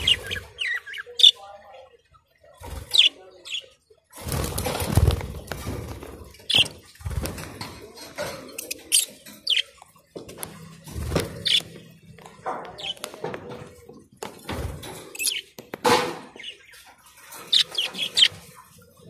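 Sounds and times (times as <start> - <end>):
birds flapping wings: 4.1 - 7.8, 10.4 - 11.9.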